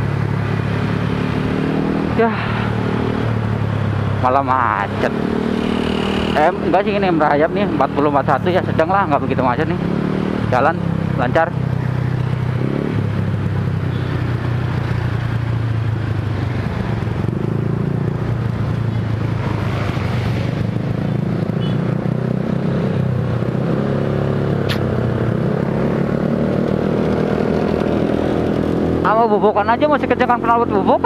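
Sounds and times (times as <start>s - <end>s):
road and wind noise: 0.0s - 31.0s
sharp click: 24.6s - 25.0s.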